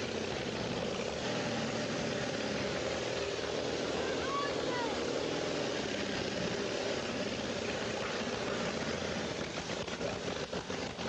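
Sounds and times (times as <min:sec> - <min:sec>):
car engine running: 0:00.0 - 0:11.0.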